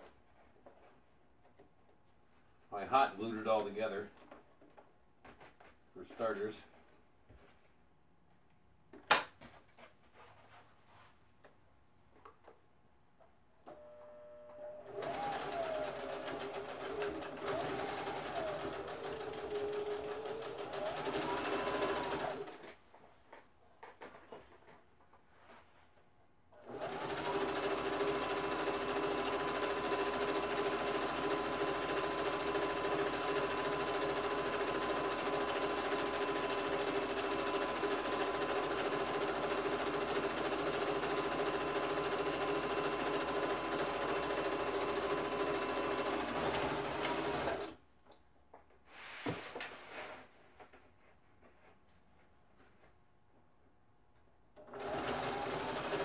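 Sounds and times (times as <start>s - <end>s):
sewing machine stitching: 14.8s - 22.7s, 26.6s - 47.8s, 54.6s - 56.0s.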